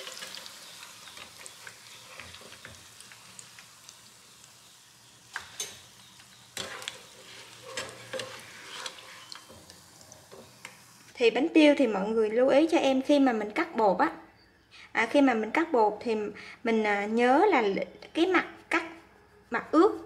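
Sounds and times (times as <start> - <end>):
hot oil sizzling: 0.0 - 11.4.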